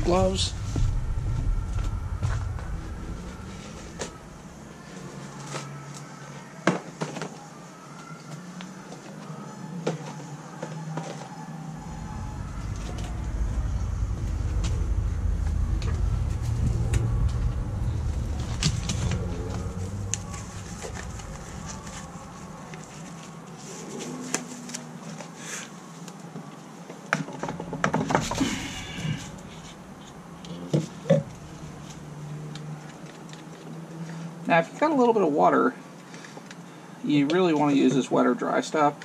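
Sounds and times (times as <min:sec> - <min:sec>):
low rumble: 0:00.0 - 0:05.5, 0:11.6 - 0:24.2, 0:27.3 - 0:33.0.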